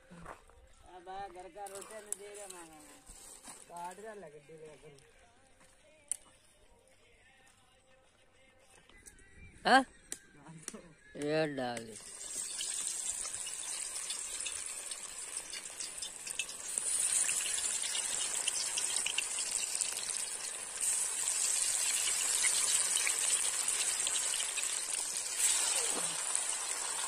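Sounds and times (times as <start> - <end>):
fish sizzling in hot oil: 11.9 - 27.0.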